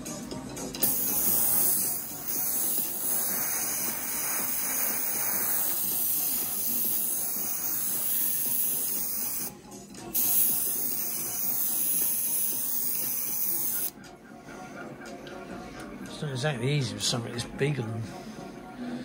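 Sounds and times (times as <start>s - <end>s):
airbrush air hiss: 0.8s - 9.5s, 10.1s - 13.9s.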